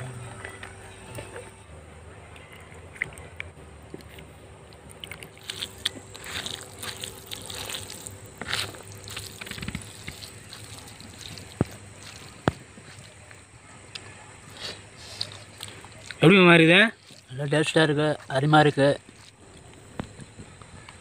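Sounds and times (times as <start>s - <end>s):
wet squelching and dripping: 2.3s - 16.3s, 16.9s - 17.5s.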